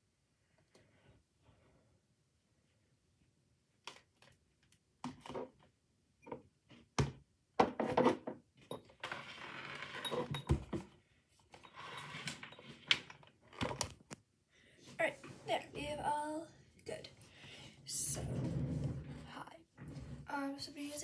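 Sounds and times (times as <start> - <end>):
rustling and scraping: 14.8 - 16.1, 17.1 - 20.4.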